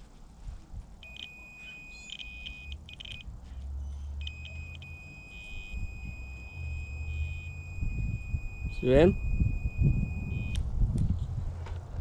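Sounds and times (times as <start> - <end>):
multimeter continuity beep: 1.0 - 10.6.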